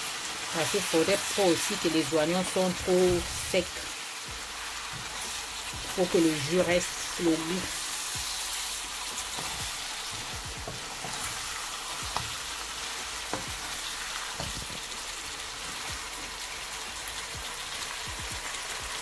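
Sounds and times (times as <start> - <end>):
food sizzling in a pan: 0.0 - 19.0
wooden spatula scraping a pan: 8.3 - 12.5.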